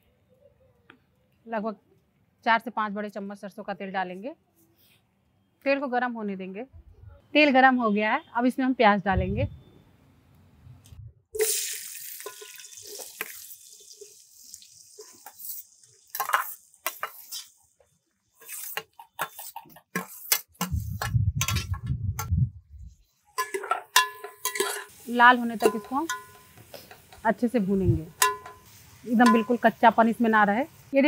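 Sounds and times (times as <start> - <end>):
onions sizzling in hot oil: 11.4 - 17.8, 23.4 - 31.0
steel spoon clinking and scraping: 12.2 - 14.1, 15.0 - 17.6, 21.4 - 21.8, 23.3 - 27.2, 28.1 - 29.8.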